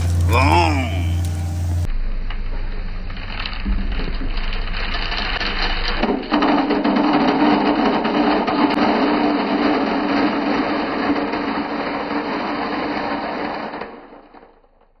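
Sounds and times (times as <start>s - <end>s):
marbles clattering into glass bowl: 3.0s - 15.0s.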